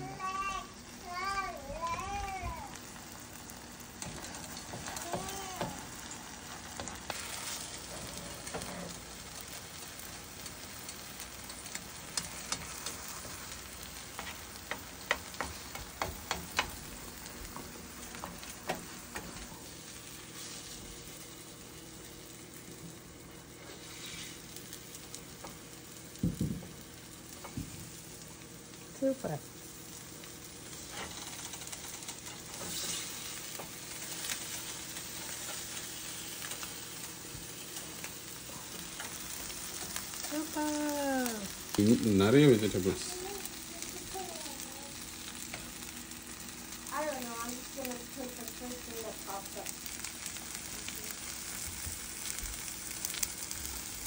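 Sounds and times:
omelet sizzling in frying pan: 0.0 - 54.0
spatula scraping and tapping pan: 14.1 - 19.5.

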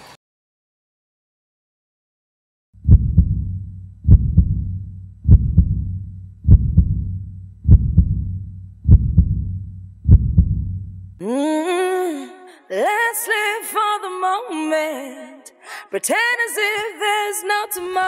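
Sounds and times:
heartbeat double thump: 2.8 - 11.2.

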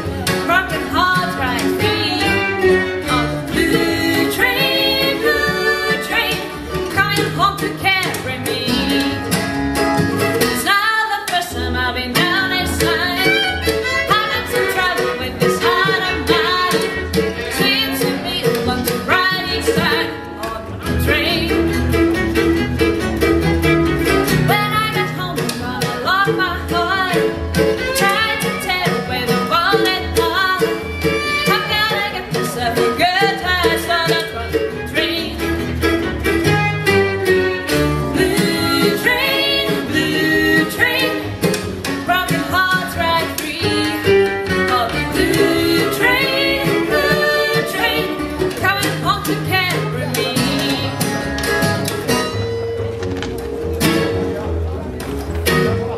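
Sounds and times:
fiddle melody: 0.0 - 55.9
mandolin: 0.0 - 55.9
strummed acoustic guitar: 0.0 - 55.9
upright bass: 0.0 - 55.9.

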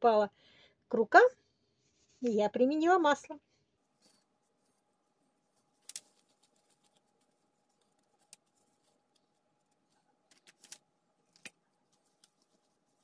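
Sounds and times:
gloved hands handling dough: 3.6 - 13.0.

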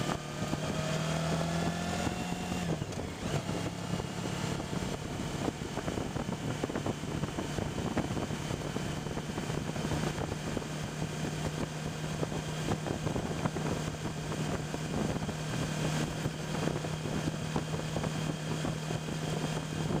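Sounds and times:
motorcycle engine cruising: 0.0 - 20.0
wind and road noise: 0.0 - 20.0.

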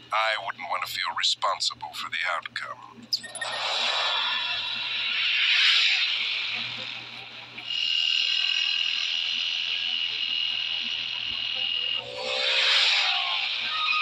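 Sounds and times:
high electronic tone: 3.2 - 14.0.

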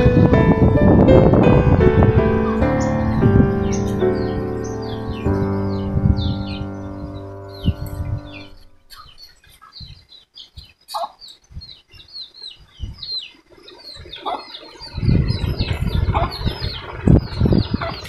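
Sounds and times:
low rumbling noise: 0.0 - 9.2, 14.7 - 18.0
small birds chirping: 2.0 - 18.0.

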